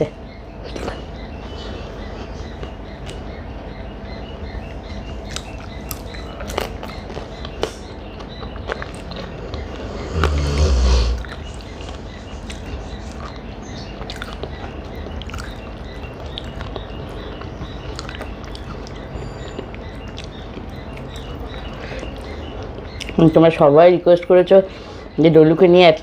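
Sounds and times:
person chewing: 0:05.2 - 0:23.2
loud bite: 0:08.7 - 0:11.6.

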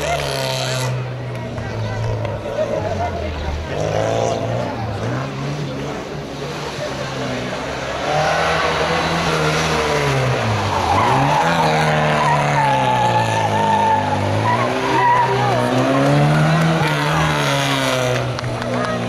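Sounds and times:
car engine revving: 0:00.0 - 0:19.0
tyres squealing: 0:08.2 - 0:18.1.

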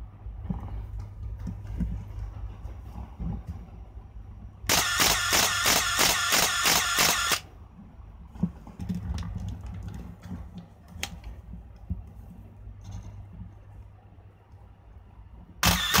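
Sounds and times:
camera shutter burst with motor winding: 0:04.7 - 0:07.4, 0:15.6 - 0:16.0.

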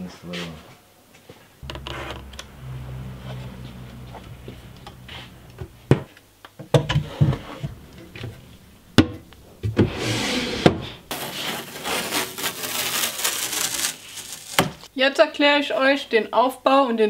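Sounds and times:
rubbing sliding noise: 0:01.6 - 0:05.9, 0:06.9 - 0:08.8, 0:09.4 - 0:14.6.

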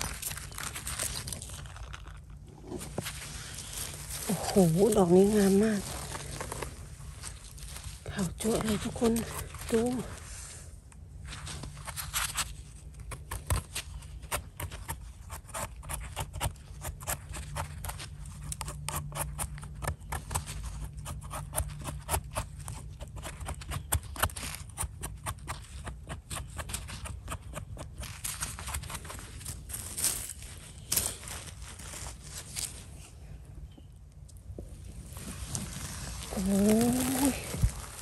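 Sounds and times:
knife scraping mushroom stem: 0:11.6 - 0:32.7.

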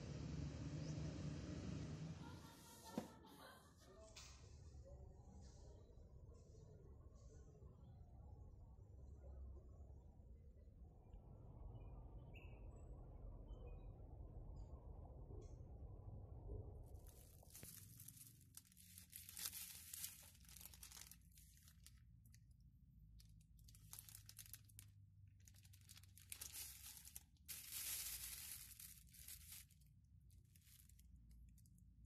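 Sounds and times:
plastic bags crinkling: 0:17.0 - 0:22.4, 0:23.2 - 0:32.0.

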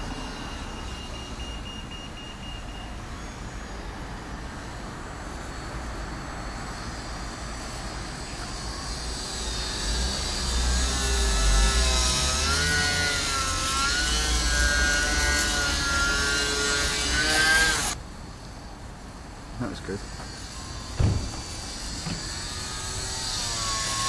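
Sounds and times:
model plane motor whining: 0:02.6 - 0:18.0, 0:20.1 - 0:24.0.

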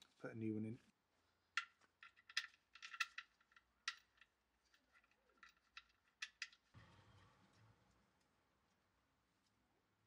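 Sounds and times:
metallic clicks of small parts: 0:01.6 - 0:06.7
soft rustle: 0:07.2 - 0:09.9.

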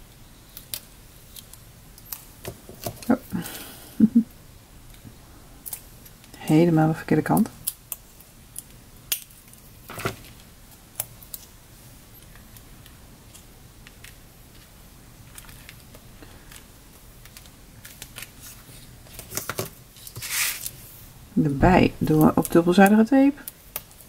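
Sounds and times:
paper clicks and rustles: 0:12.2 - 0:20.8.

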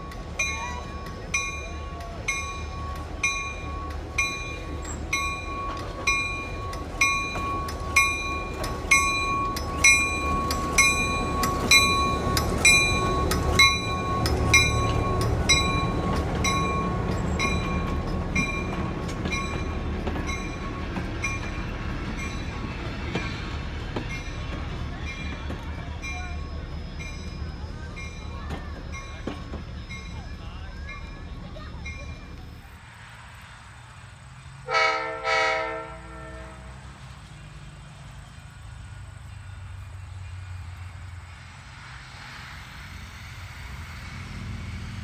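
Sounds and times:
locomotive bell ringing: 0:00.0 - 0:32.6.

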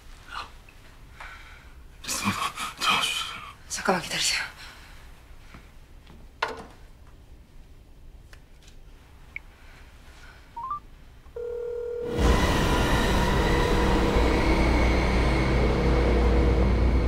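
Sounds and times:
phone keypad beeps: 0:10.6 - 0:10.8
steady phone tone: 0:11.4 - 0:12.3
loud rumbling noise: 0:12.1 - 0:17.0.

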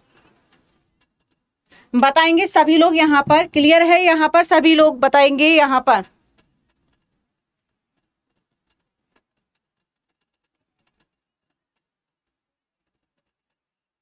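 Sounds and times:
faint clicks: 0:06.0 - 0:13.6.

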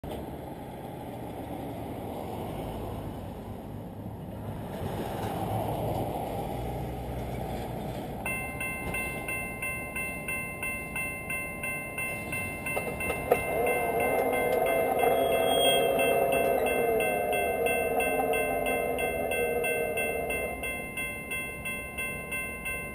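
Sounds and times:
road traffic rumble: 0:00.1 - 0:22.9
level crossing bell ringing: 0:08.3 - 0:22.9.

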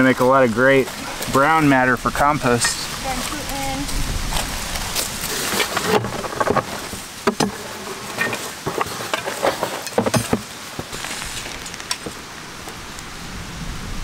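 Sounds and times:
dry leaves and dirt crunching: 0:00.0 - 0:13.2
cardboard tube handled: 0:04.4 - 0:12.2.

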